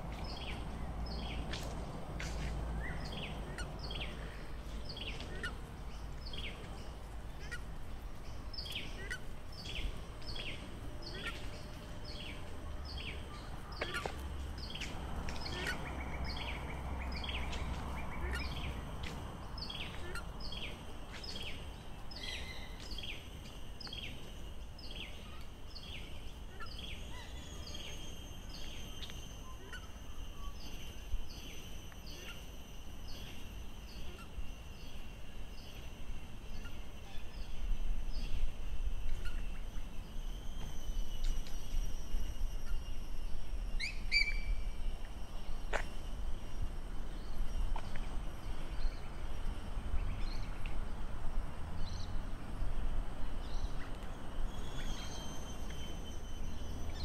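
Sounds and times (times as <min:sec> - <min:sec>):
faint bird calls: 0:00.2 - 0:38.5, 0:39.1 - 0:43.0.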